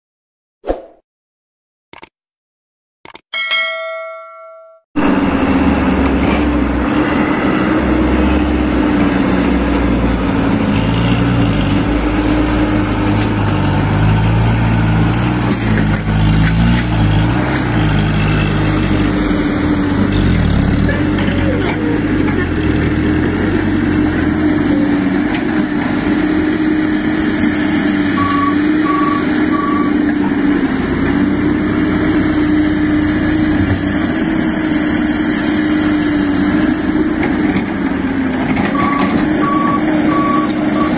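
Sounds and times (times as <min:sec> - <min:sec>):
dump truck diesel engine: 0:05.0 - 0:40.9
short high beeps: 0:28.2 - 0:29.9, 0:38.8 - 0:40.9.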